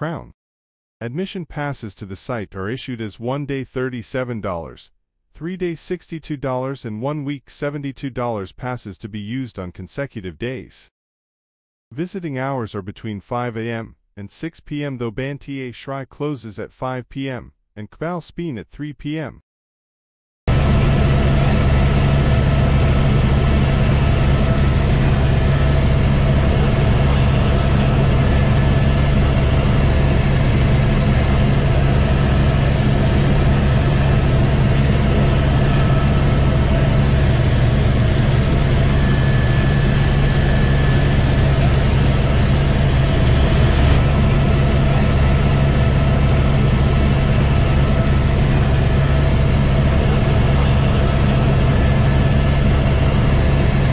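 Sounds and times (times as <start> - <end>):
helicopter engine and rotor drone: 20.5 - 53.9.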